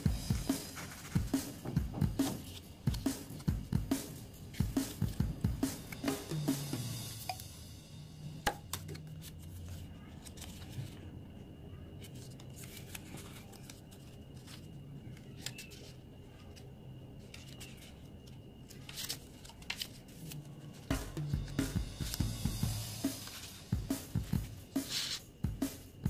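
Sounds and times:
low steady background hum: 0:01.2 - 0:26.0
paper pages rustling: 0:08.7 - 0:11.1, 0:12.0 - 0:21.0, 0:24.8 - 0:25.2.

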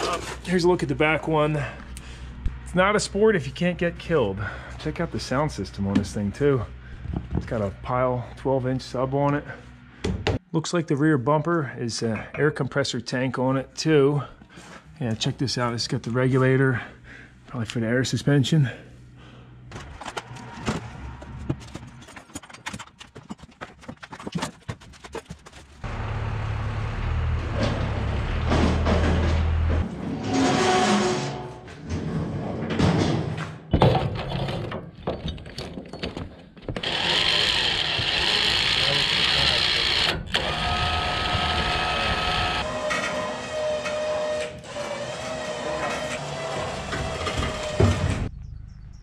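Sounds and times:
steady low hum with noise: 0:00.0 - 0:10.4
items knocking and clattering: 0:19.8 - 0:25.7, 0:32.7 - 0:36.8
electric winch motor whine: 0:36.8 - 0:48.3.

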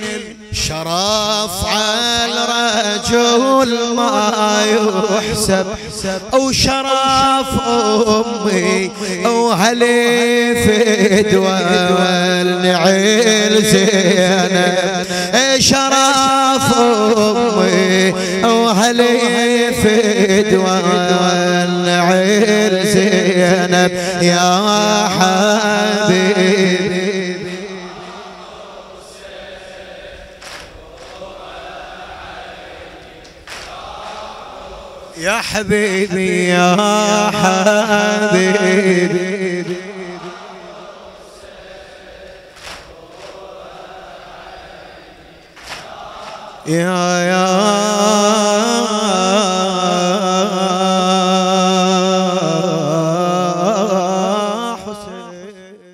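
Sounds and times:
man chanting a lament: 0:00.0 - 0:55.9
crowd noise: 0:26.0 - 0:36.8, 0:38.1 - 0:47.0.

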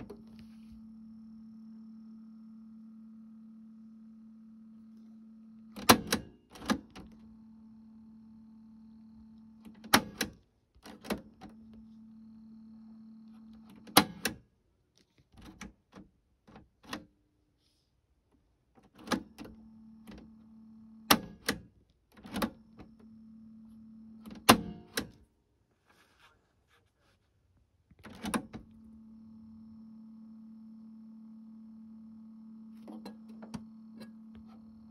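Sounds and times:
low hum from deck: 0:00.0 - 0:09.8, 0:22.7 - 0:34.9.

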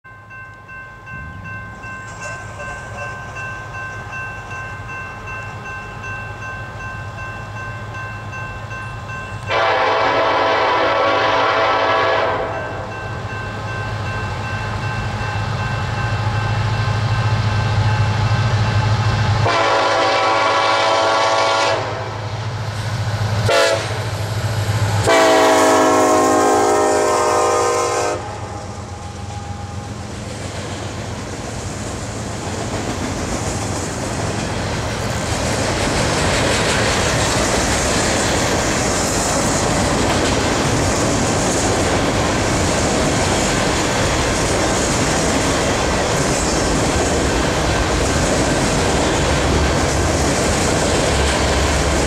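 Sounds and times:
diesel locomotive engine rumble: 0:00.1 - 0:52.0
train air horn blasts: 0:09.4 - 0:12.9, 0:19.4 - 0:22.3, 0:23.4 - 0:24.1, 0:25.0 - 0:29.9.

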